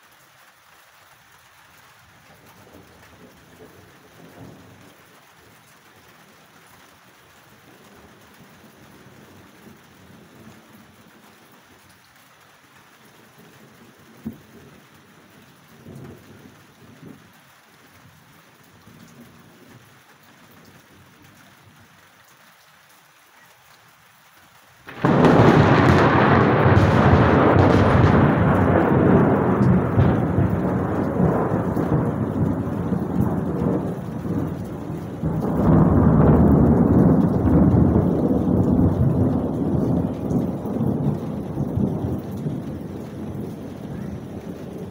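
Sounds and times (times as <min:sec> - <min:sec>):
light rain: 0:00.0 - 0:44.9
thunderclap and rumbling thunder: 0:13.2 - 0:17.3, 0:24.9 - 0:44.9.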